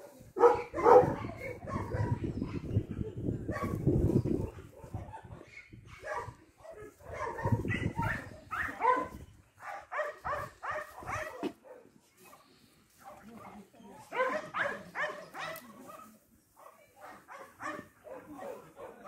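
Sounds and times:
dog yelping barks: 0.4 - 2.8, 4.8 - 11.8, 14.0 - 15.7, 17.0 - 19.0.

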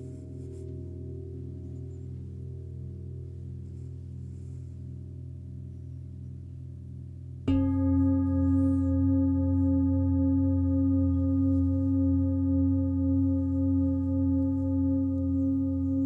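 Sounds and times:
low instrument hum: 0.0 - 16.0
crystal singing bowl ringing: 7.4 - 16.0.

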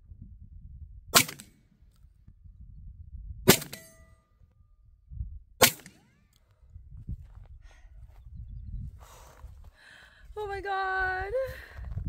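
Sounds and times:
shotgun shots: 1.2 - 1.5, 3.5 - 4.0, 5.6 - 6.2.

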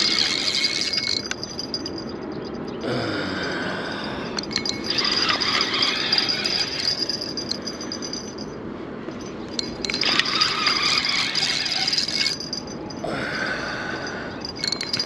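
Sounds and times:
fishing reel cranking: 0.0 - 2.0, 4.4 - 8.4, 9.6 - 12.8, 14.4 - 15.0.

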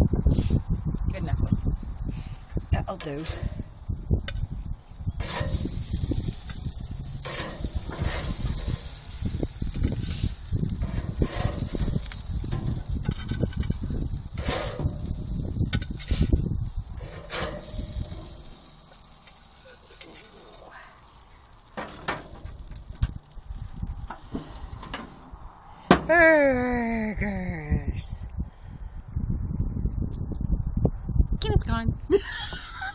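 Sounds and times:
burgers sizzling on grill: 0.0 - 26.9
metal spatula scraping grate: 2.9 - 3.7, 5.2 - 23.3, 24.0 - 26.1.

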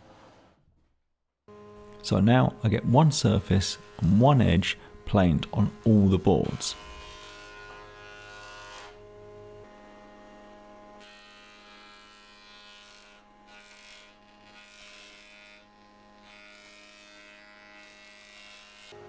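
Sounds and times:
planer motor whine: 1.5 - 14.8, 18.8 - 19.0
planer cutting wood: 1.5 - 19.0.

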